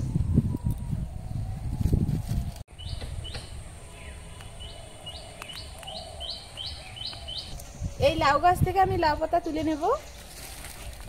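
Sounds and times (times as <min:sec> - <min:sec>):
small bird chirping: 0:02.7 - 0:08.5.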